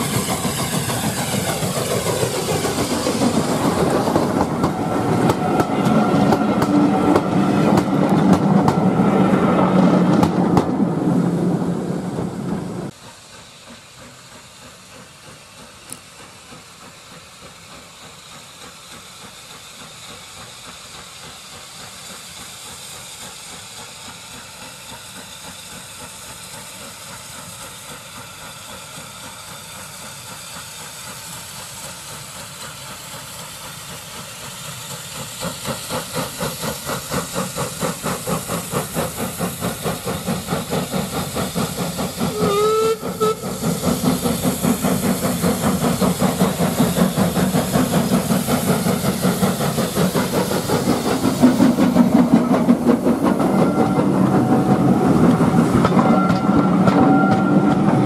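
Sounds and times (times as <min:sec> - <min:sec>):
steam hiss: 0:00.0 - 0:58.0
steam locomotive exhaust beats: 0:00.0 - 0:58.0
train coaches passing: 0:00.0 - 0:58.0
locomotive whistle: 0:42.2 - 0:43.6, 0:53.5 - 0:58.0.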